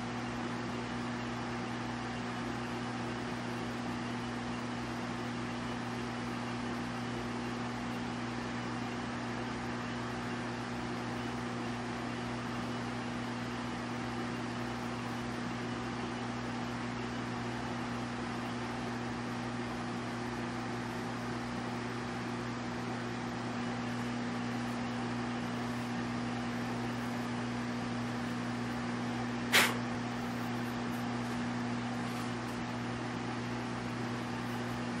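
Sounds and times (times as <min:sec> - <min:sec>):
low electrical hum: 0:00.0 - 0:35.0
even hiss: 0:29.5 - 0:29.9.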